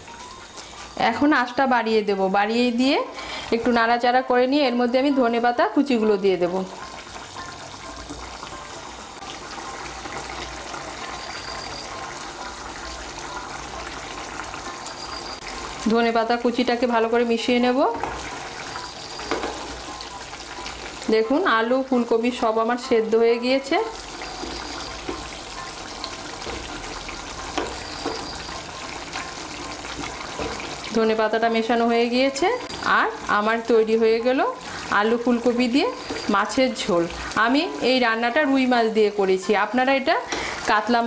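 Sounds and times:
curry bubbling in a pan: 6.6 - 15.9, 17.8 - 21.1, 23.8 - 38.7
curry bubbling and popping: 23.9 - 31.0.

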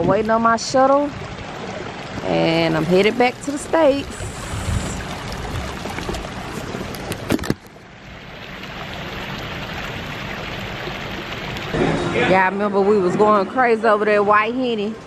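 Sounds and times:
fountain water splashing: 0.0 - 11.8.

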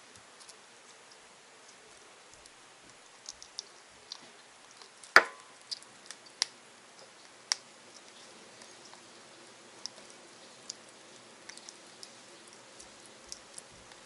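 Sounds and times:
knock on wooden board: 5.2 - 5.4.

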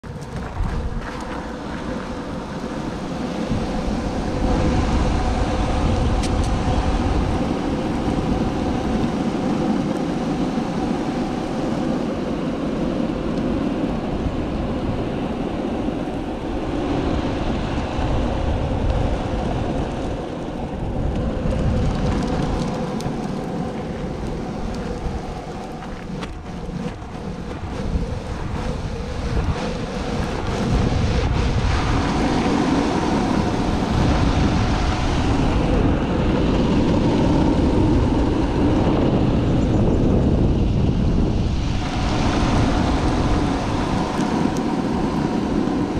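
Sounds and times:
longboard wheels rolling on pavement: 0.0 - 45.9.

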